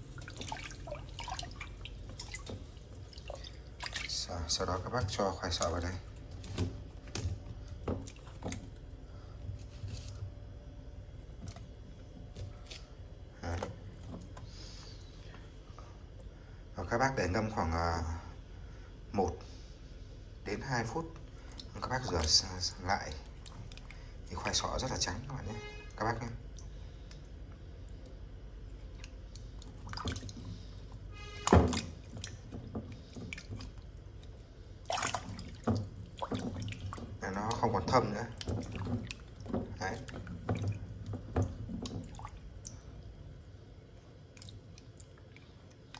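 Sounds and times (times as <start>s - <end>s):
water swishing: 0.0s - 10.3s, 21.3s - 27.0s, 28.7s - 45.9s.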